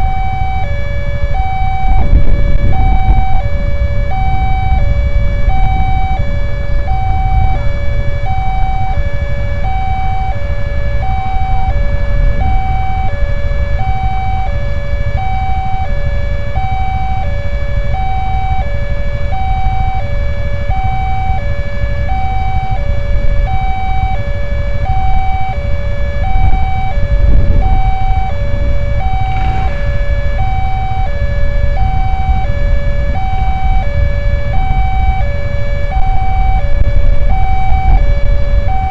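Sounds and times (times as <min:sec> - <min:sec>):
two-tone level crossing alarm: 0:00.0 - 0:38.9
low rumble: 0:01.1 - 0:09.8, 0:10.4 - 0:15.0, 0:26.2 - 0:38.8.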